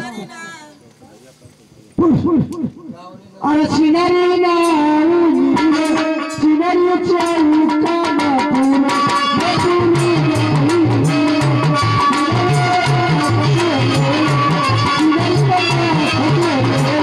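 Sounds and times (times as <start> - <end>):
fast hand-drum strokes: 2.0 - 17.0.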